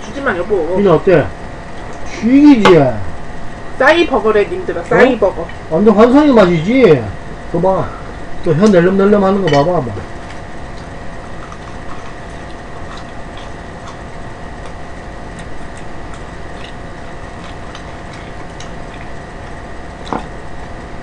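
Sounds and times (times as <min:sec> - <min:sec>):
faint constant hum: 0:00.0 - 0:21.0
person eating clicks and smacks: 0:10.0 - 0:20.4.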